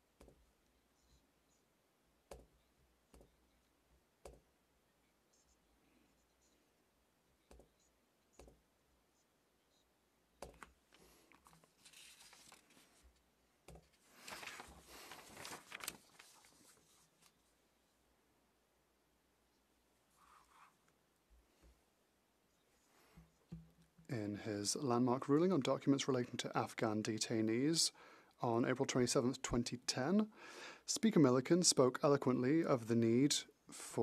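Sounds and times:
paper rustling: 10.6s - 17.5s.

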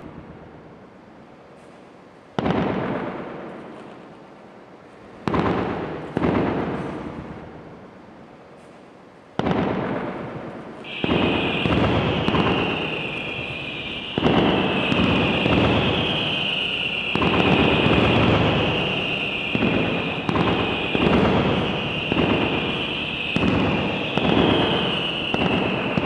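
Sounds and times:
fireworks bangs: 0.0s - 0.8s, 1.5s - 4.2s, 4.9s - 7.9s, 8.5s - 26.0s
high steady whistle: 10.8s - 26.0s.

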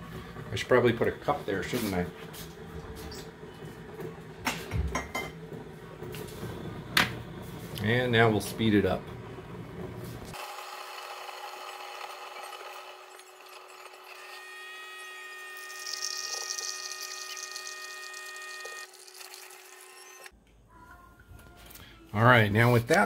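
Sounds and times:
coffee maker whine: 0.0s - 20.3s
coffee streaming into mug: 10.3s - 20.3s.

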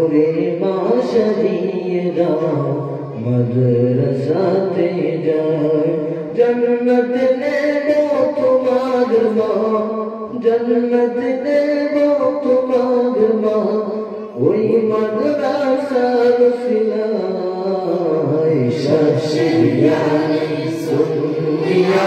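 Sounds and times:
boys singing unaccompanied: 17.8s - 22.0s.

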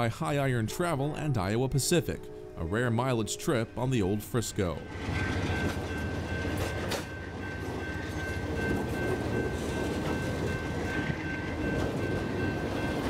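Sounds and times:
train wheels rumbling on rail: 4.5s - 13.0s.

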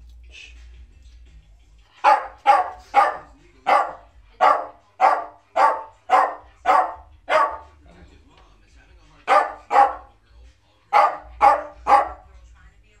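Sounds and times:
dog barking: 2.0s - 7.8s, 9.2s - 10.1s, 10.9s - 12.3s.

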